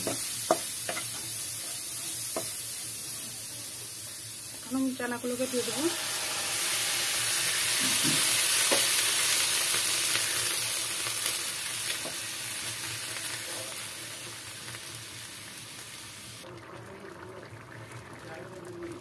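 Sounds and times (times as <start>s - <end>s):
spatula tapping pan: 0.0s - 1.2s, 2.3s - 2.6s
food sizzling in hot oil: 0.0s - 19.0s.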